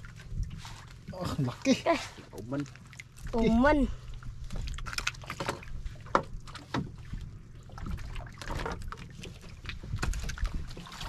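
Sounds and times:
wind and water rumble: 0.0s - 11.0s
knocks and clatter on boat: 2.3s - 11.0s.

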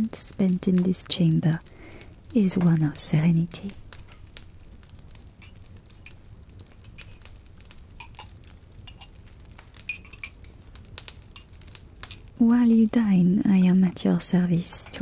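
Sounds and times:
dishes and cutlery clinking: 9.9s - 10.4s.

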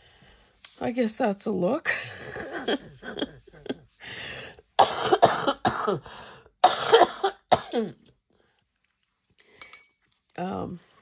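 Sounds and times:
woman coughing: 4.8s - 6.0s, 6.6s - 8.0s.

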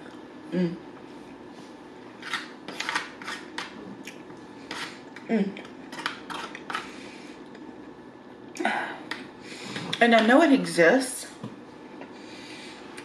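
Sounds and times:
person humming: 0.5s - 0.8s, 5.3s - 5.6s.

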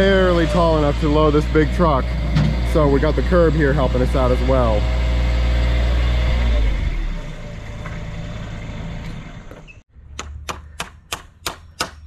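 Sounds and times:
hammer striking wooden stakes: 10.1s - 12.0s.

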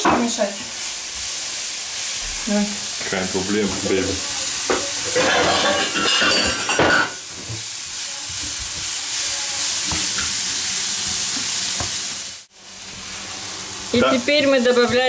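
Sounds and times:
leeks sizzling in oil: 0.0s - 15.0s
spatula stirring and scraping: 3.0s - 12.0s.

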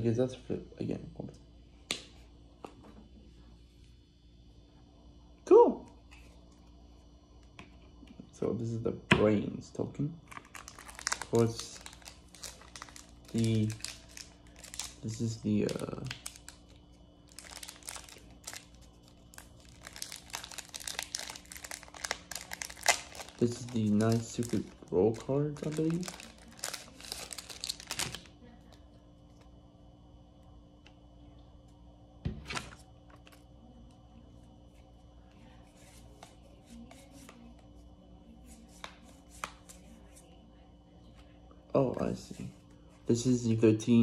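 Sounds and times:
packaging crinkling and rustling: 10.2s - 28.3s.

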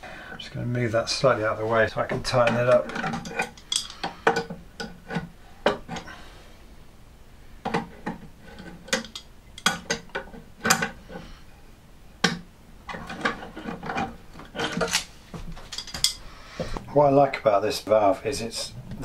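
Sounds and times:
metal tools clinking and scraping: 2.4s - 4.6s, 8.4s - 10.9s, 12.9s - 16.3s.

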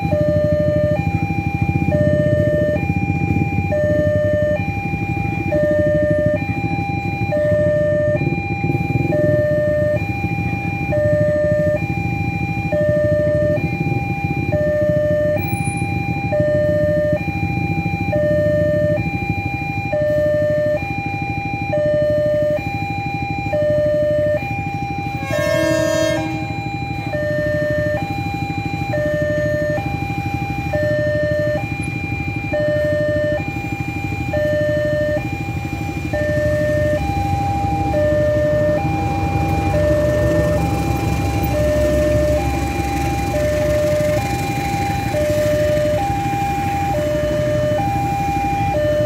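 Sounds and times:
motorcycle engines idling: 0.0s - 49.0s
level-crossing two-tone alarm chime: 1.7s - 49.0s
vehicle horn: 25.2s - 26.7s.

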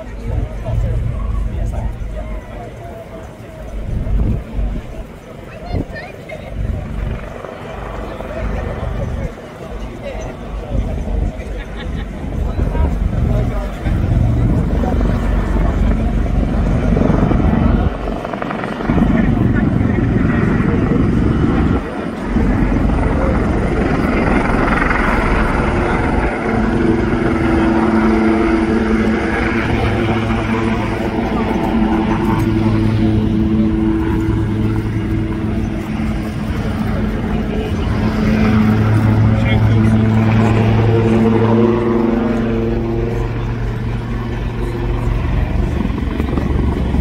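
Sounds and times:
helicopter rotors beating: 0.0s - 47.0s
turbine engine whine: 0.0s - 47.0s.

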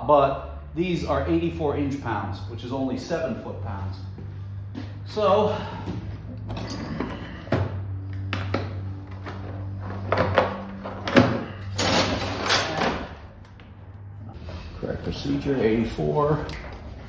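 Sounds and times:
metal parts scraping and rattling: 9.2s - 13.2s
metal tools knocking and clinking: 11.7s - 13.1s.

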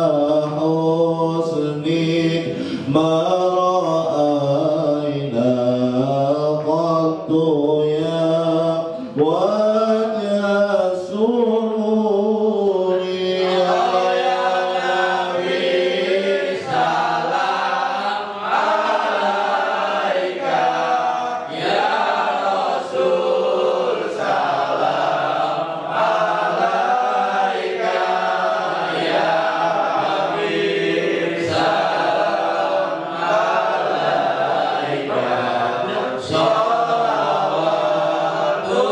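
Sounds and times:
man chanting into a microphone: 0.0s - 19.9s, 34.2s - 38.9s
group chanting: 0.0s - 38.9s.

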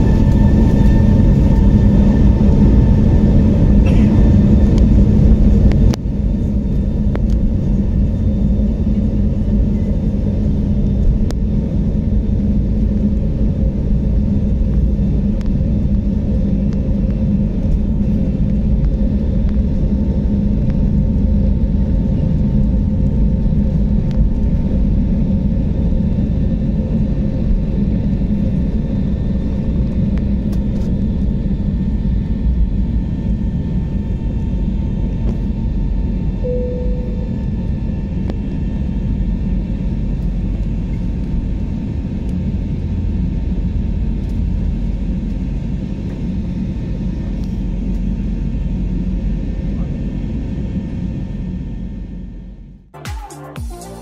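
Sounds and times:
jet engine rumble in cabin: 0.0s - 52.9s
faint whine: 36.2s - 41.2s.

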